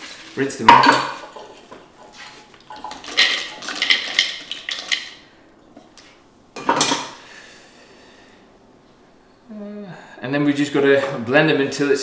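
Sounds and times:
almonds rattling into plastic bowl: 2.8 - 5.2.

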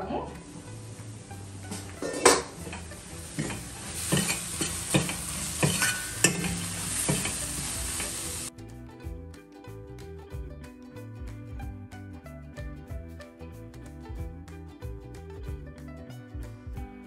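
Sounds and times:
meat sizzling in a pan: 0.4 - 8.5
spatula scraping a pan: 1.7 - 8.5.

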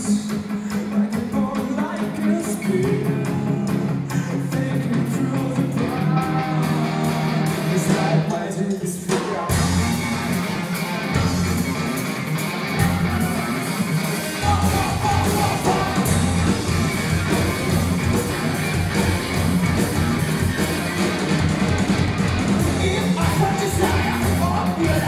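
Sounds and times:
bass guitar: 0.0 - 25.0
drums: 0.0 - 25.0
electric guitar: 0.0 - 25.0.

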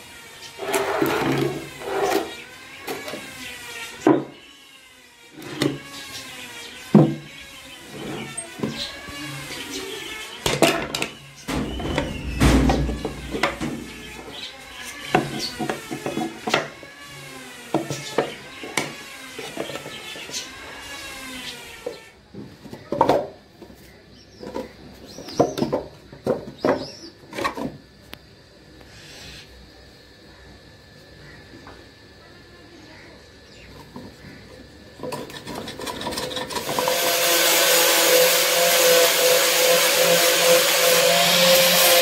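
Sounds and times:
wooden parts knocking: 10.5 - 14.2.

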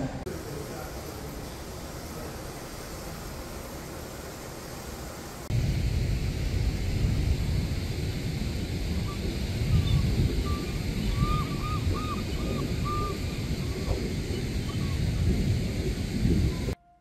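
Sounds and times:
churning foamy water: 0.0 - 16.8
low hiss: 0.0 - 16.8
wind rumbling on microphone: 0.0 - 16.8
faint bird call: 9.0 - 15.1.

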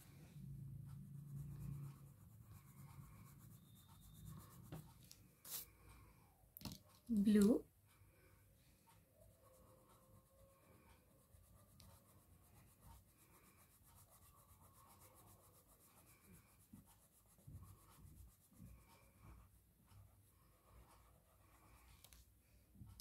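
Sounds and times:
crayon scratching on paper: 0.9 - 5.7, 9.4 - 22.2.

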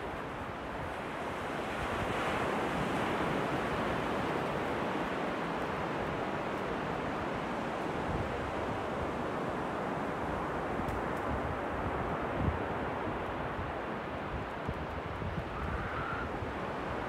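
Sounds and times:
waves breaking on a beach: 0.0 - 17.0
wind buffeting microphone: 10.9 - 17.0.

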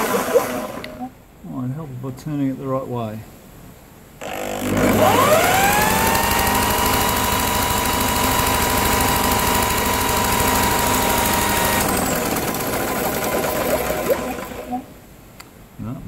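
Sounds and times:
motor high whine: 0.0 - 1.2, 4.2 - 14.9.

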